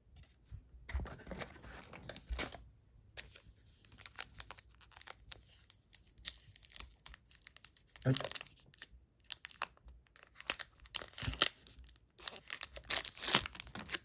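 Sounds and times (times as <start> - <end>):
foil wrapper crinkling: 4.0 - 14.0
foil wrapper tearing: 6.0 - 14.0.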